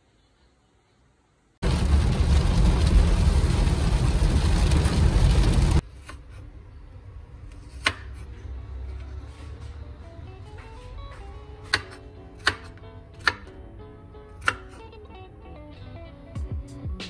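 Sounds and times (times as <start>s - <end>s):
heavy rain on car roof: 1.6s - 5.8s.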